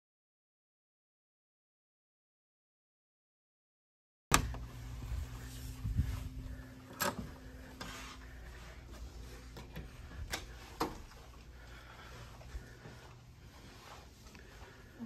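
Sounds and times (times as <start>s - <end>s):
low steady hum: 4.3s - 15.0s.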